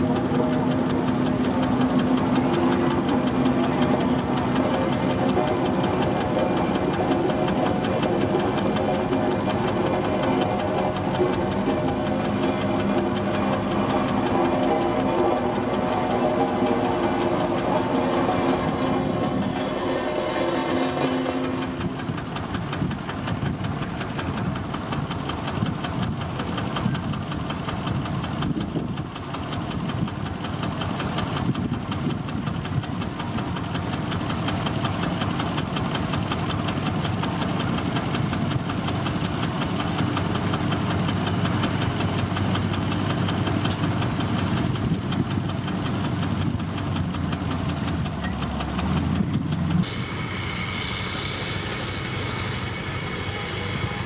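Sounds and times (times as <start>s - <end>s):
diesel engine under load: 0.0s - 54.0s
different engine sound: 0.0s - 54.0s.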